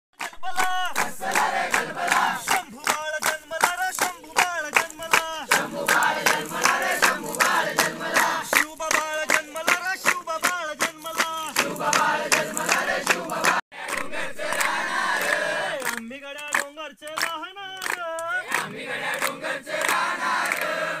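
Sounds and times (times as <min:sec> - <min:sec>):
rhythmic hand-clapping: 0:00.1 - 0:21.0
crowd shouting: 0:00.3 - 0:02.8, 0:05.4 - 0:10.0, 0:11.5 - 0:15.9
group chanting in unison: 0:00.3 - 0:03.0, 0:05.1 - 0:10.2, 0:11.1 - 0:16.0, 0:18.3 - 0:21.0.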